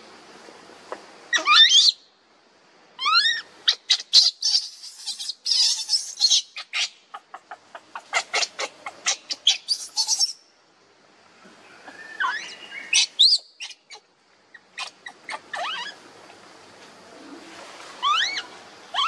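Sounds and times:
baby monkey crying: 1.3 - 2.0, 3.0 - 10.4, 12.2 - 16.0, 18.0 - 19.0
shrill cries and shrieks: 3.0 - 6.9, 18.0 - 19.0.

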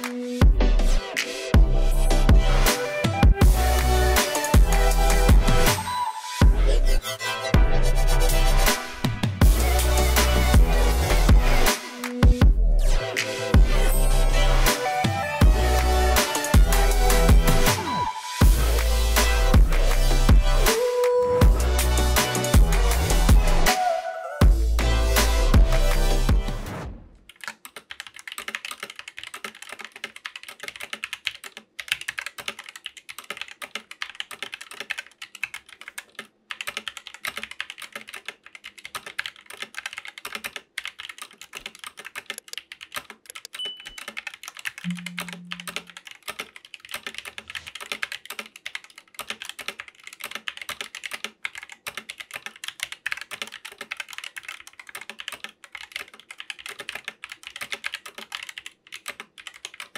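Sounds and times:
mechanical keyboard typing: 27.3 - 59.9.

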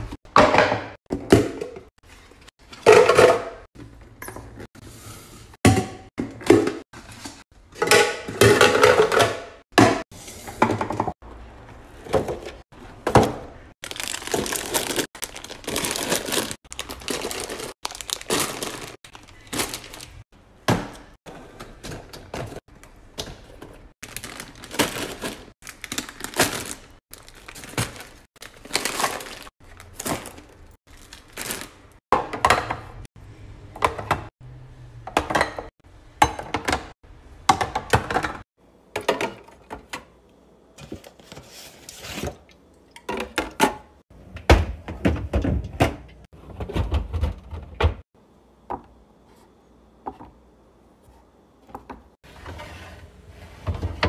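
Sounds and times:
groceries knocking into plastic bins: 0.0 - 1.9, 5.6 - 11.2, 12.0 - 33.1, 43.1 - 48.0.

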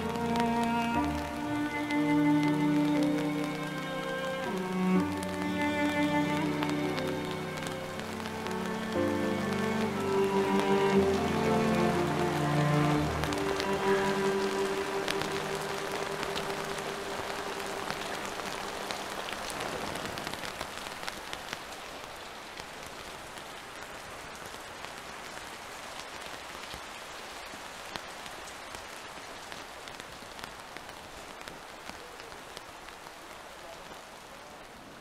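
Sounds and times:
raindrops ticking: 0.0 - 35.0
steady rain falling: 0.0 - 35.0.

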